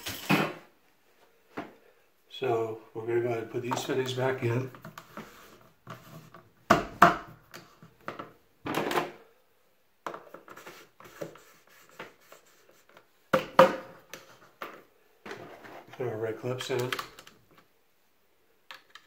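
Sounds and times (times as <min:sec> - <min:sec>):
plastic scrape: 0:15.3 - 0:16.1.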